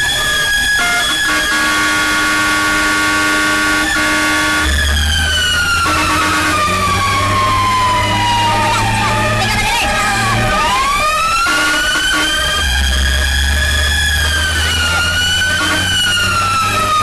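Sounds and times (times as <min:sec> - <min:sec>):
fire engine siren: 0:00.0 - 0:17.0
air horn blasting: 0:00.8 - 0:04.8, 0:05.7 - 0:07.0, 0:09.8 - 0:13.1, 0:14.4 - 0:17.0.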